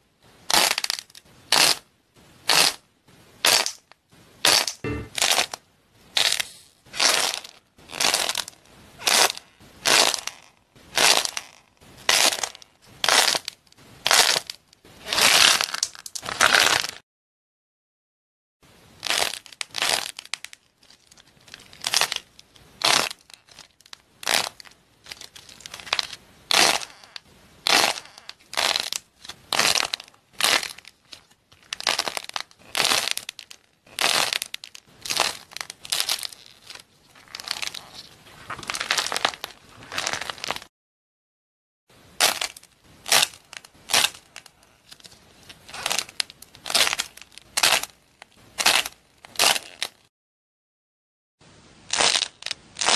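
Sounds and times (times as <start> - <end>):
doughnuts crackling and tearing: 6.2 - 17.0, 19.0 - 40.7, 42.2 - 50.1, 51.9 - 52.9.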